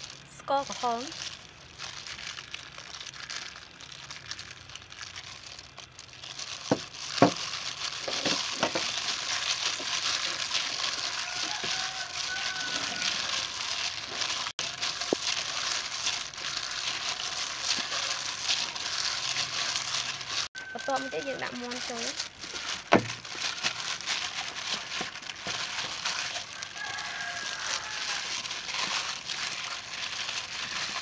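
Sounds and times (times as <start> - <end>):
plastic glove crinkling: 0.0 - 31.0
wet squelching of marinade: 0.0 - 31.0.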